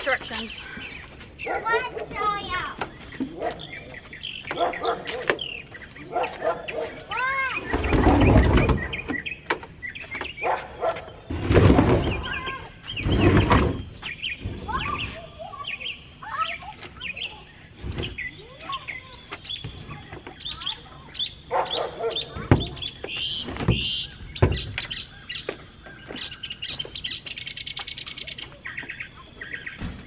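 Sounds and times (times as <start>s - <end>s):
small birds chirping: 0.0s - 30.0s
wicker couch scraping on wooden deck: 10.6s - 15.0s.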